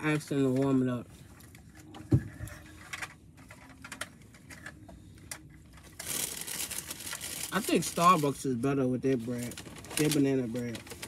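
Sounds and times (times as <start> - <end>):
paper bag rustling: 5.8 - 8.4, 9.1 - 11.0.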